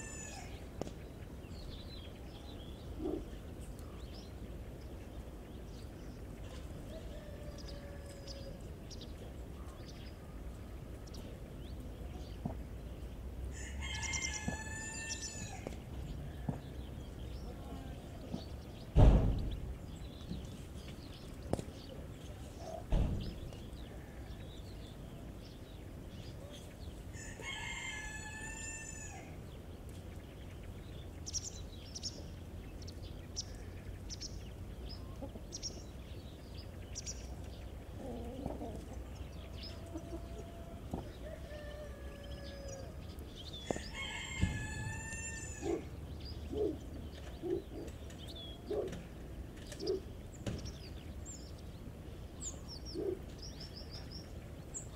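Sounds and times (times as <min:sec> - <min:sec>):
rooster crowing: 0:00.0 - 0:00.6, 0:06.9 - 0:08.7, 0:13.5 - 0:15.7, 0:27.1 - 0:29.4, 0:39.9 - 0:43.0, 0:43.7 - 0:45.8
chickens clucking: 0:34.8 - 0:50.1.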